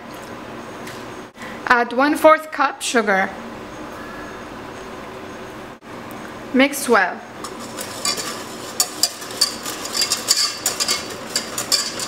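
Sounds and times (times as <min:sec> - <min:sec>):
whisk scraping a saucepan: 0:07.4 - 0:12.0.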